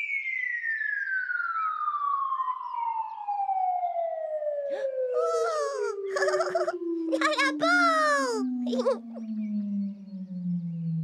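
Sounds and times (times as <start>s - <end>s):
excited voice: 5.2s - 9.2s.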